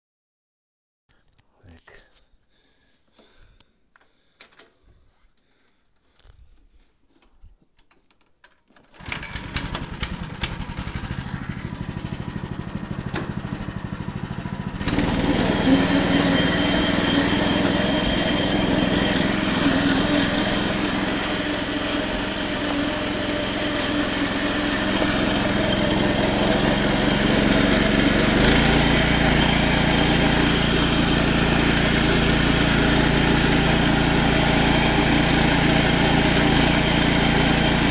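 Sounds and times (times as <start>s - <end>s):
tractor engine starting and running: 8.4s - 37.9s.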